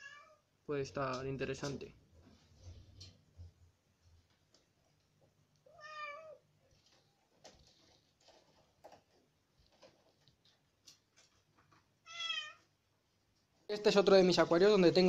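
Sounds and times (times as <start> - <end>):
meow-like animal call: 0.0 - 0.4, 5.7 - 6.4, 12.0 - 12.6.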